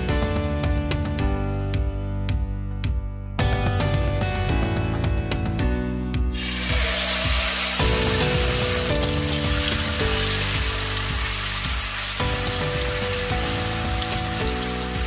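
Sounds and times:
chicken sizzling in hot oil: 6.3 - 15.0.

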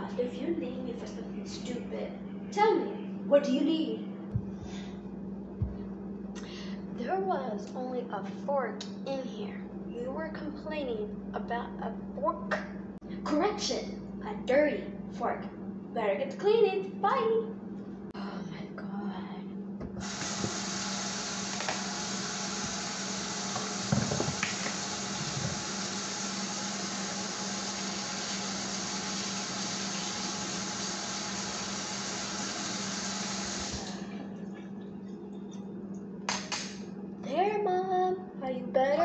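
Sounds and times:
tap water running into sink: 19.9 - 34.0.

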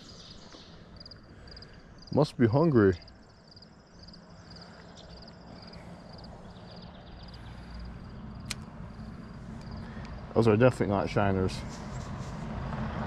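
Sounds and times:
vehicle engine hum: 0.0 - 13.0
sharp click: 8.4 - 8.7.

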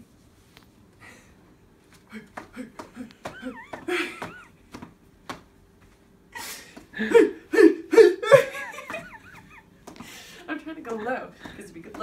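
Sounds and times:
person laughing: 2.1 - 4.8, 6.5 - 9.7.

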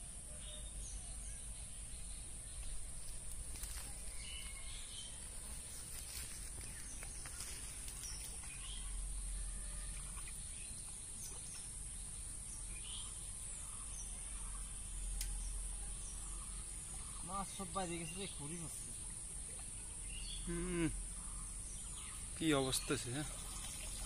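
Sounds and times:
water dripping and splashing: 23.1 - 24.0.

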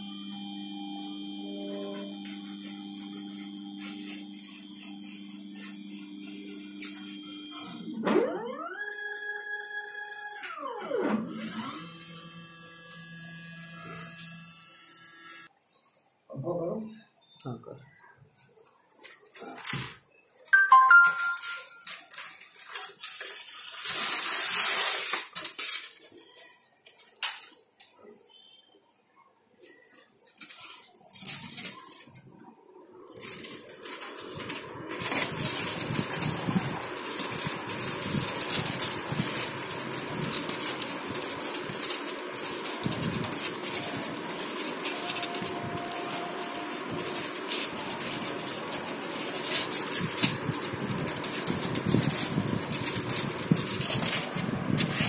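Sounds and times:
polystyrene panel rustling and scraping: 1.4 - 8.0, 18.3 - 28.3, 29.6 - 55.0.

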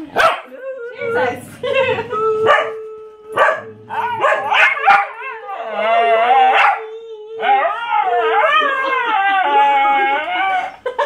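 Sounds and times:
dog howling: 2.0 - 10.8.

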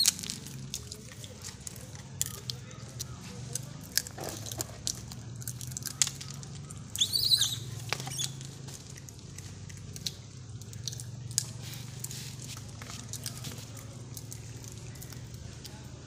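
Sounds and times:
monkey squeak: 0.0 - 0.2, 6.9 - 8.5
monkeys chewing clicks and crunches: 0.0 - 16.0.

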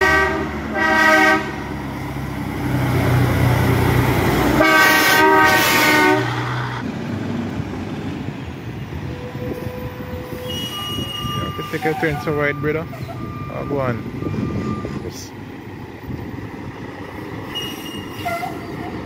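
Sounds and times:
truck air horn blasts: 0.0 - 1.7, 4.6 - 6.5, 17.5 - 18.7
diesel engine drone: 0.0 - 10.0.

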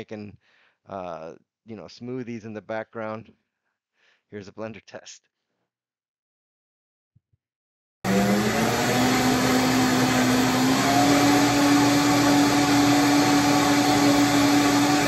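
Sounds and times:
blender motor whining: 8.1 - 15.0.

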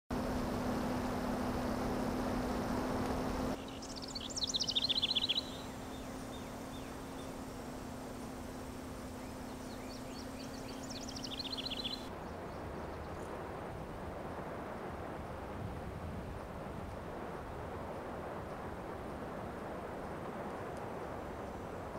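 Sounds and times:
steady low hum: 0.1 - 21.9
songbird singing: 1.6 - 13.3.

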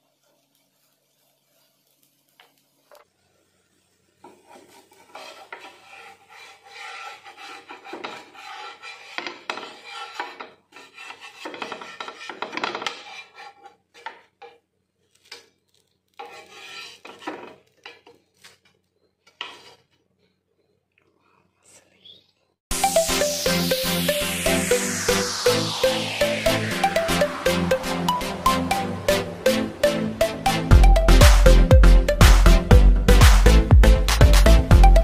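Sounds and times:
wooden spatula scraping a pan: 4.1 - 20.7.

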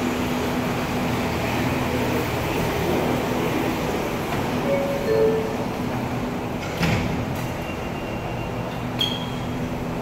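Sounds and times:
train equipment humming: 0.0 - 10.0.

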